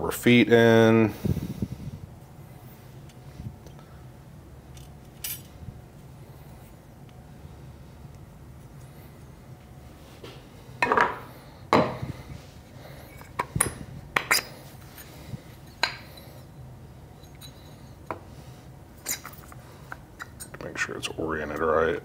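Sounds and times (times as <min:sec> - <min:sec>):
metal parts clinking and clacking: 0:04.7 - 0:05.5.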